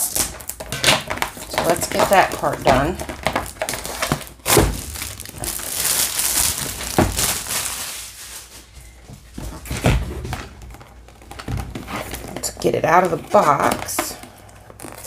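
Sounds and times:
plastic sleeve crinkling: 0.0 - 9.7, 10.4 - 15.0
cardboard box thumps: 0.6 - 5.1, 6.9 - 7.3.

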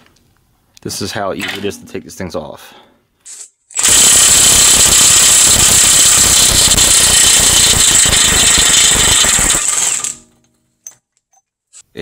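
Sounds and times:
impact wrench hammering: 3.8 - 10.2.

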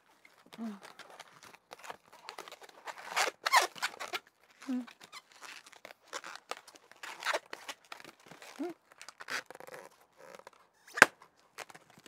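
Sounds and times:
balloon rubbing and squeaking: 0.5 - 11.8.

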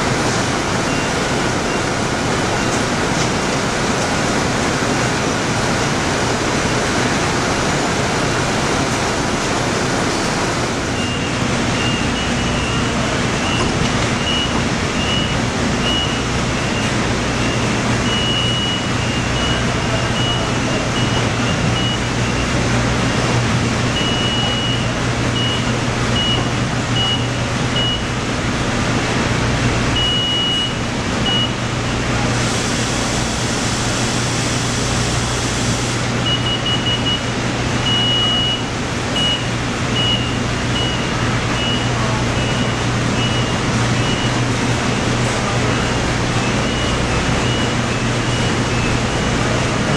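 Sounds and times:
short high warning beeps: 13.5 - 21.2, 32.6 - 38.6
hiss: 32.3 - 36.0
machinery din: 48.2 - 49.9.

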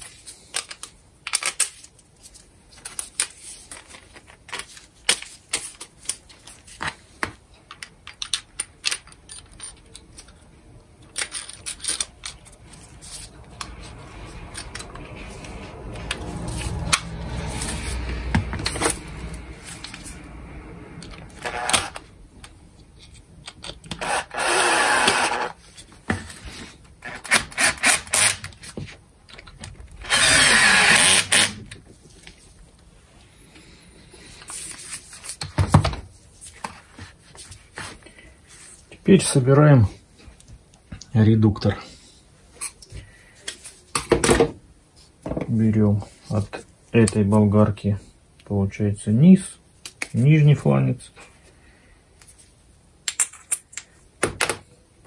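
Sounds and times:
metal parts clinking on workbench: 7.7 - 10.3, 11.0 - 12.5
cordless drill spinning: 21.2 - 22.0, 23.9 - 25.6, 30.0 - 31.6.

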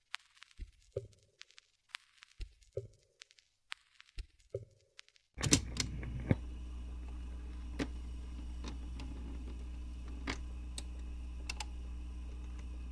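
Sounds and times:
vinyl clicks and crackles: 0.0 - 12.9
record run-out groove hum: 5.4 - 12.9.

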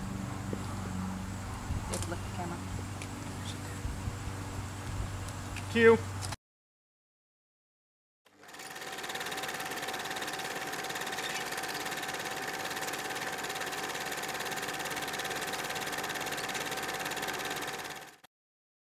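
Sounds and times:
film projector clattering: 8.3 - 18.3.

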